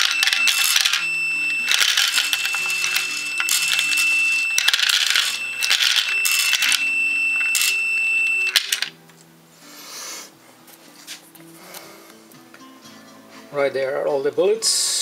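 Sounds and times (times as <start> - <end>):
bullets rattling and clinking: 0.0 - 1.1, 1.7 - 6.8, 8.5 - 8.9
high motor whine: 0.0 - 8.9
faint background music: 0.0 - 15.0.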